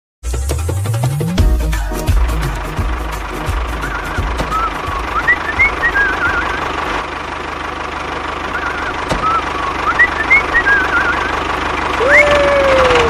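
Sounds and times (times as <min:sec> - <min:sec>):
tractor engine idling: 0:01.1 - 0:13.0
warbling chirping whistles: 0:03.8 - 0:06.7, 0:08.5 - 0:11.4.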